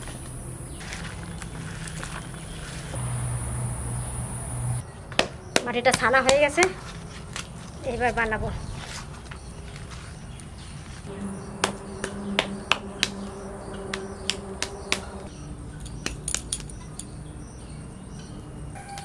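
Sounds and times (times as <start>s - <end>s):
faint steady hum: 0.0s - 4.8s, 11.1s - 19.0s
bangles clicking together: 15.8s - 17.2s.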